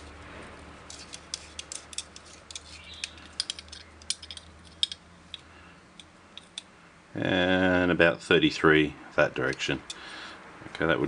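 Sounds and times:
light metal scrapes: 0:00.0 - 0:05.4
small metallic clicks: 0:00.9 - 0:06.7.

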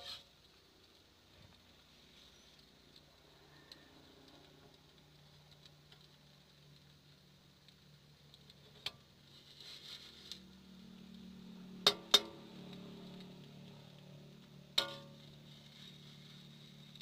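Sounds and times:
faint steady hum: 0:00.0 - 0:17.0
metal spatula clanking on wok: 0:11.9 - 0:12.4, 0:14.8 - 0:15.2.

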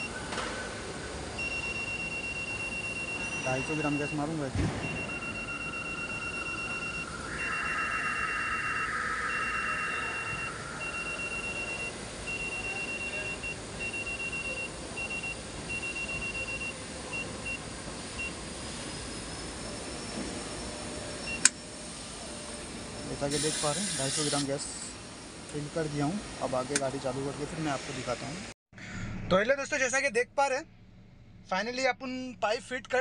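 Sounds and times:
machine beeping: 0:01.4 - 0:21.6, 0:23.0 - 0:24.7
hissing whine: 0:03.4 - 0:13.7, 0:17.8 - 0:28.2.

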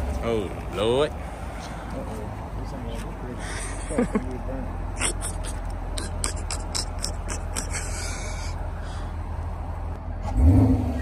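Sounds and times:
car engine idling: 0:00.0 - 0:11.0
engine revving sharply: 0:10.2 - 0:11.0.

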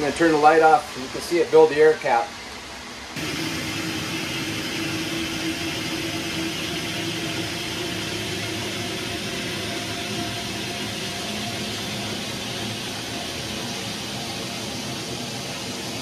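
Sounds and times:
water and air rushing through filter: 0:00.0 - 0:16.0
low hum: 0:03.2 - 0:16.0.

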